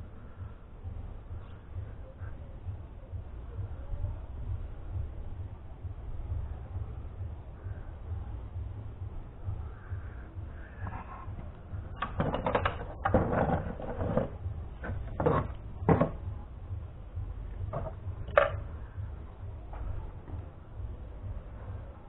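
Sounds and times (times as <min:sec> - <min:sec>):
steady low rumble: 0:00.0 - 0:22.0
plastic parts clicking and knocking: 0:11.9 - 0:16.2, 0:17.7 - 0:18.6.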